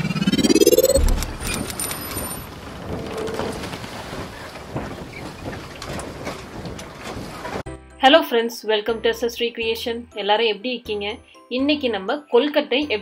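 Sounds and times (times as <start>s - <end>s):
low boom: 0.0s - 2.2s
rising swoosh: 0.0s - 2.5s.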